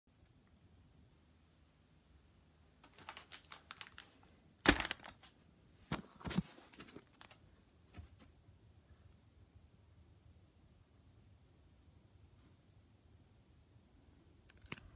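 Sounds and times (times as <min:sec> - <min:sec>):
plastic packaging crinkling: 0:02.8 - 0:05.4.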